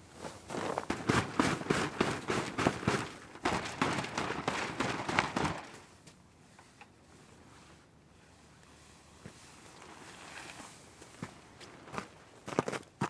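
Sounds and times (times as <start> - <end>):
nylon gear crackling: 0.2 - 5.9.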